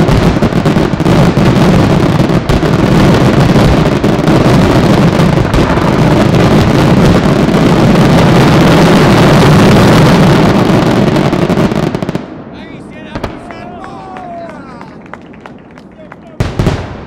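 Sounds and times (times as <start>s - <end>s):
firework shells bursting: 12.1s - 17.0s.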